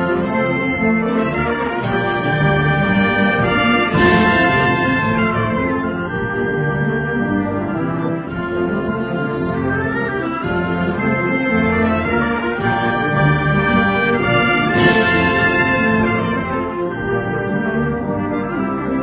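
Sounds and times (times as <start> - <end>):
wind band playing a march: 0.0 - 19.0
percussion crashes: 1.8 - 5.8, 12.6 - 16.8.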